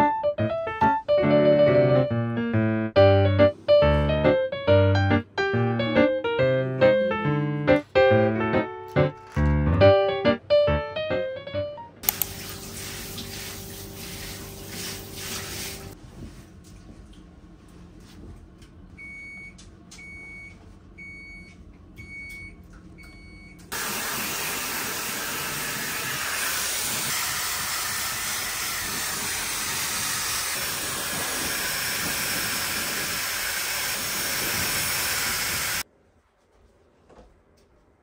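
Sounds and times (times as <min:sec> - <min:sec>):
loud steady hiss: 0:12.0 - 0:16.0, 0:23.7 - 0:35.8.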